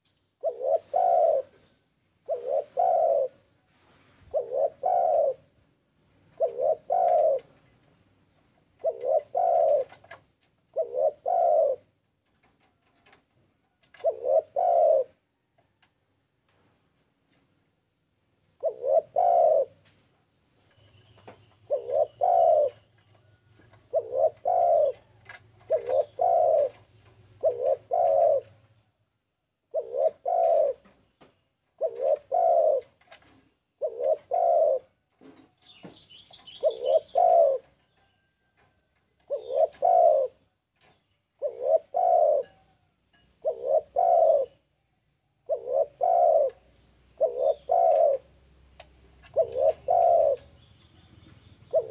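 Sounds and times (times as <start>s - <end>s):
dove cooing: 0.0s - 5.6s, 6.3s - 7.7s, 8.8s - 12.0s, 13.8s - 15.3s, 18.6s - 19.9s, 20.8s - 28.8s, 29.7s - 31.0s, 31.8s - 40.6s, 41.3s - 42.8s, 43.4s - 44.8s, 45.4s - 48.5s, 49.1s - 51.0s, 51.6s - 51.9s.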